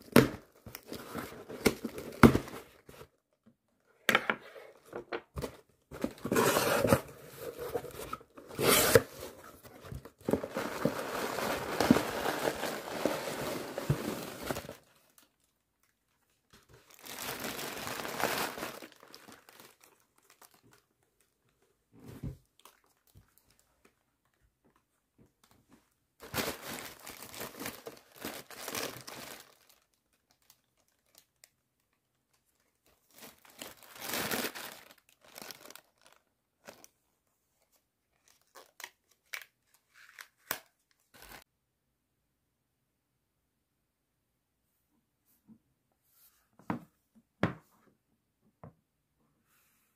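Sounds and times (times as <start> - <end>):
plastic packing crinkling: 5.4 - 15.9, 16.5 - 20.9, 26.2 - 31.6, 32.3 - 36.9.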